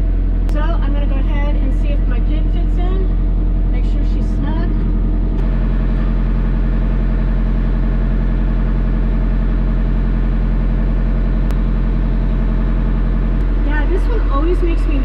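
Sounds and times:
diesel tractor engine idling: 0.0s - 15.0s.

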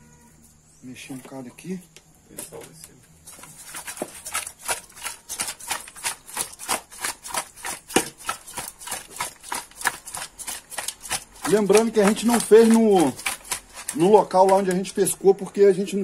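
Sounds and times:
fish swishing in metal pot: 3.2s - 15.2s.

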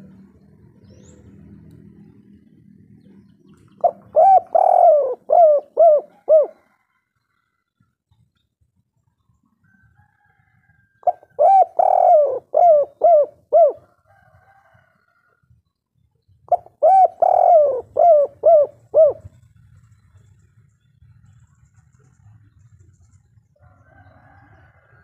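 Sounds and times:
dove cooing: 0.0s - 7.0s, 11.0s - 14.5s, 16.5s - 19.8s.

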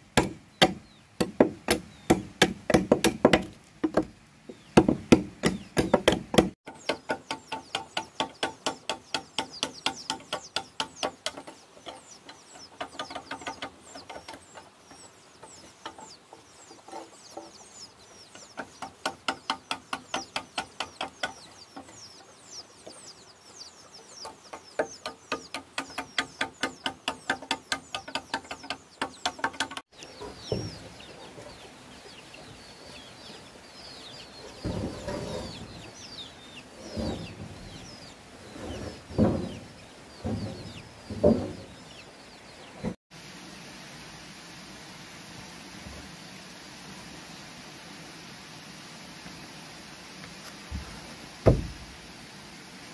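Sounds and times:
birds chirping: 0.0s - 43.0s
wood knock: 50.7s - 51.9s.

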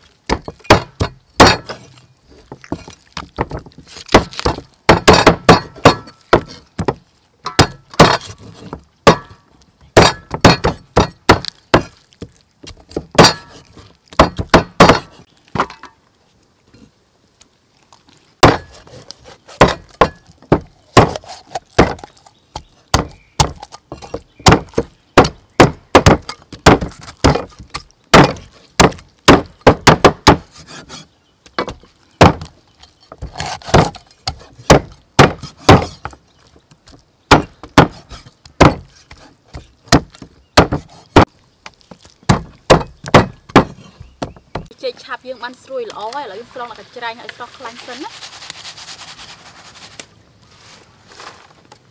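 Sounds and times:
cleaver chopping on wooden board: 0.3s - 1.8s, 3.3s - 9.4s, 10.0s - 12.0s, 12.9s - 13.6s, 14.2s - 15.7s, 18.4s - 18.8s, 19.6s - 30.9s, 31.6s - 32.5s, 33.1s - 36.2s, 37.3s - 41.3s, 42.3s - 44.7s.

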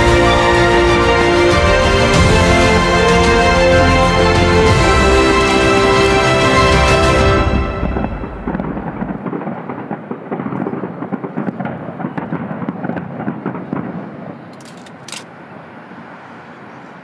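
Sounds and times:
rumbling echo: 0.0s - 14.5s
fireworks crackling: 6.8s - 15.1s.

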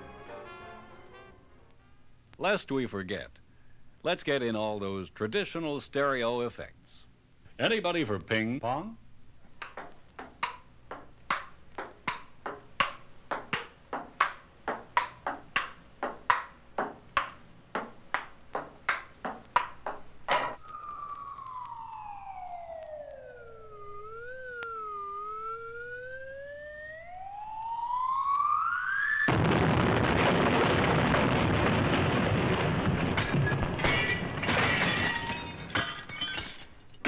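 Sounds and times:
ping-pong ball being hit: 9.6s - 20.6s
wailing siren-like tone: 20.6s - 29.3s.

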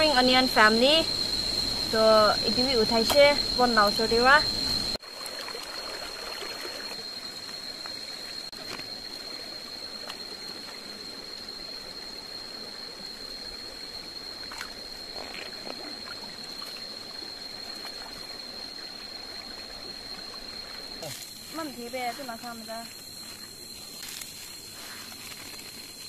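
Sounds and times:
high-pitched insect drone: 0.0s - 26.0s
water trickling: 1.3s - 8.5s.

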